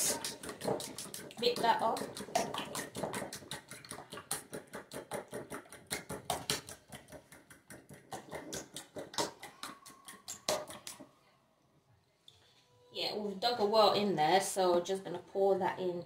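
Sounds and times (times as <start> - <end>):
fork beating eggs in bowl: 0.0 - 11.2.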